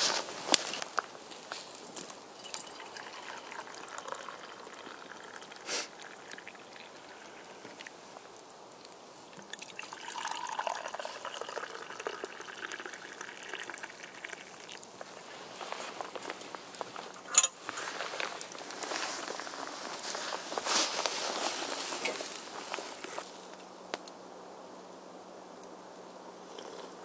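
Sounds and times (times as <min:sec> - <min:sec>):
liquid pouring into mug: 0:02.3 - 0:07.9, 0:09.4 - 0:14.9.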